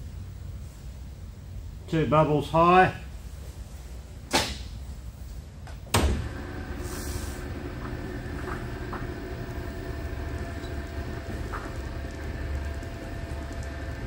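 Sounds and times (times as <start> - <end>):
sharp clunk: 4.3 - 4.7
lathe running with low hum: 6.0 - 14.0.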